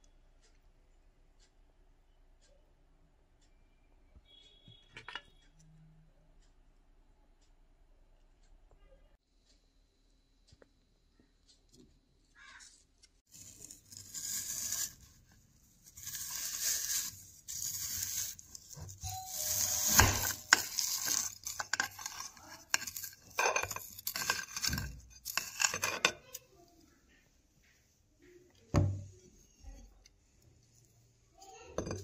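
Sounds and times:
knife scraping through ice cream: 0:13.3 - 0:26.5.

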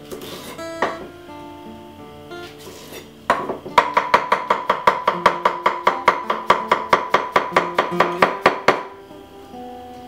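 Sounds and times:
knife chopping on wooden board: 0:02.6 - 0:08.9.

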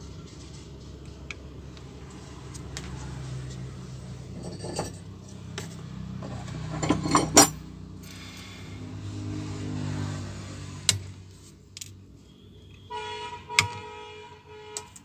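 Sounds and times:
metal tools clinking on workbench: 0:04.3 - 0:05.1, 0:06.2 - 0:07.6.

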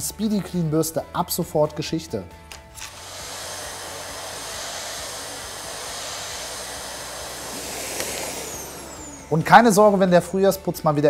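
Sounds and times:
vacuum cleaner running: 0:02.8 - 0:10.7.

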